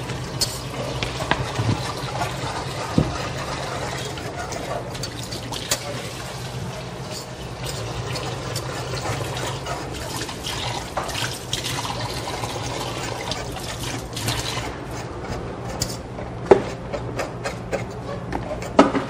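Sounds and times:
tap running water into sink: 0.9s - 6.4s, 7.6s - 14.7s.

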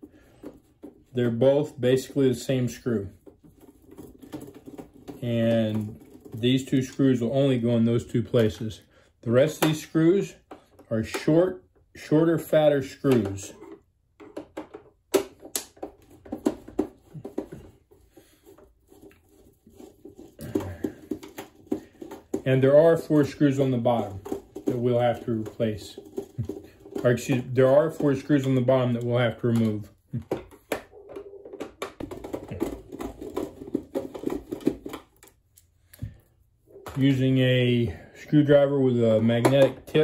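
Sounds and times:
plastic housing knocking and scraping: 0.0s - 7.4s, 13.0s - 35.4s, 39.1s - 40.0s.

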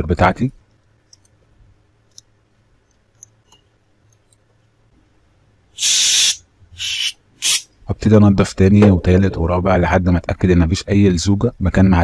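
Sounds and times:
aerosol spray hiss: 5.8s - 7.7s.

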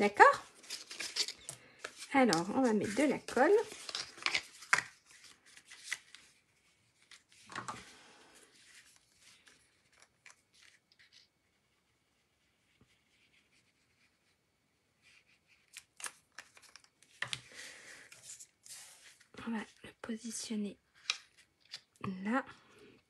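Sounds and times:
paper card rustling: 0.2s - 7.9s, 8.5s - 11.3s, 15.1s - 19.3s.

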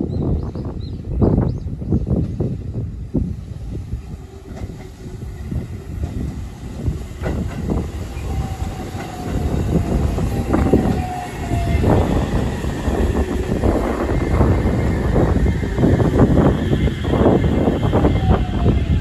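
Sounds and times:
train running rumble: 0.0s - 19.0s
train inverter whine: 0.6s - 19.0s
train wheels clacking over rail joints: 6.0s - 14.6s.

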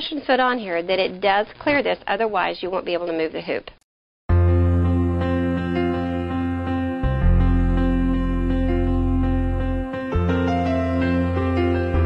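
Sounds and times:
soft slow instrumental music: 4.3s - 12.0s.

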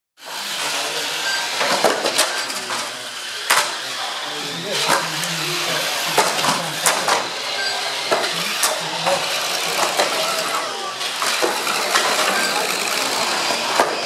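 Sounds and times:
rc car motors running: 0.2s - 14.0s
plastic knocks and clacks: 6.1s - 7.3s.

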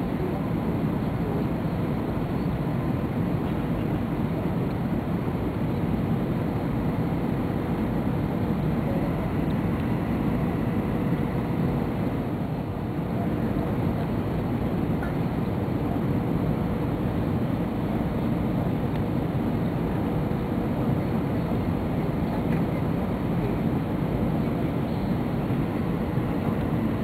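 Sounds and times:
airplane cabin engine rumble: 0.0s - 27.0s
faint steady hum: 0.0s - 27.0s.

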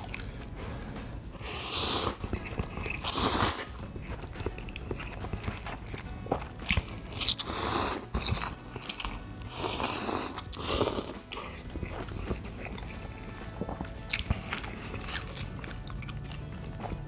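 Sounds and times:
biting and chewing: 0.0s - 17.0s.

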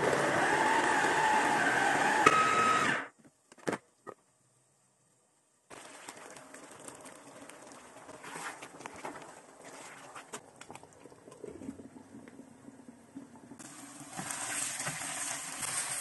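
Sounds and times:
electric food chopper running: 0.0s - 3.1s.

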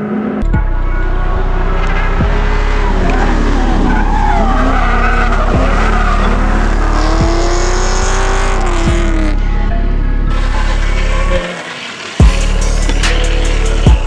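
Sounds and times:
car engines revving: 0.0s - 14.0s
tyres squealing: 1.2s - 8.7s.

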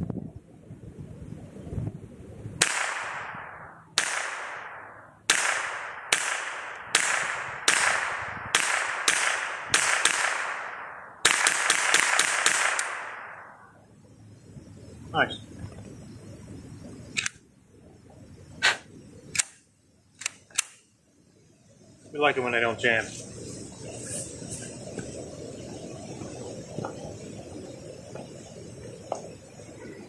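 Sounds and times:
rifle shots echoing: 2.6s - 13.8s.

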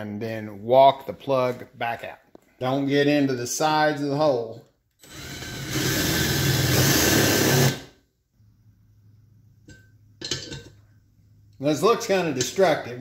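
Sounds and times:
cordless drill boring metal: 5.0s - 7.9s.

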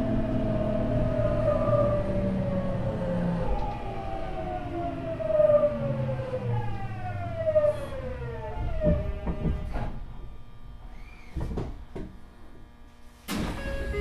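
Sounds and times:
train motors whining: 0.0s - 12.6s
knocks: 8.8s - 9.9s.

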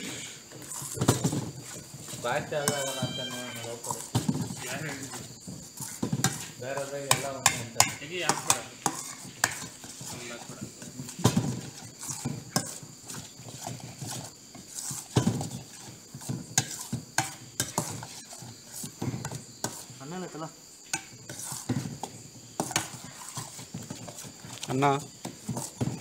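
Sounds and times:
metal clinks and knocks: 0.6s - 19.4s
metal spoon scraping steel pan: 1.6s - 20.0s, 20.9s - 21.8s
steady high tone: 2.6s - 3.8s.

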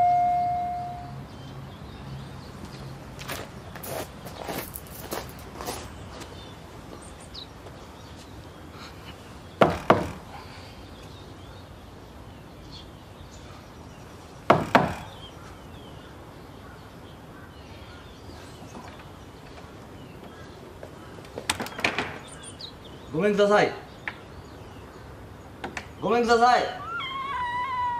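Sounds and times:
knocking on a door: 9.6s - 10.2s.

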